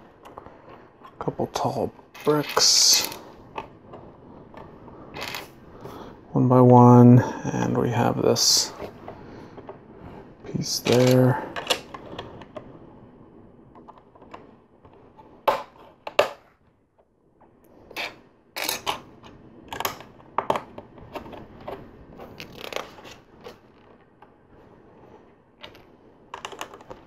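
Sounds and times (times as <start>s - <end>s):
plastic bricks clicking and snapping: 18.0s - 21.4s, 25.6s - 27.0s.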